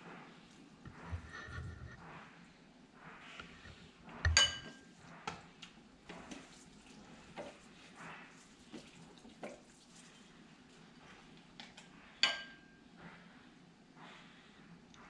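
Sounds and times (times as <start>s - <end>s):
soft scraping and knocks: 0.9s - 2.3s
spoon clinking on ceramic dish: 4.3s - 4.8s, 12.2s - 12.6s.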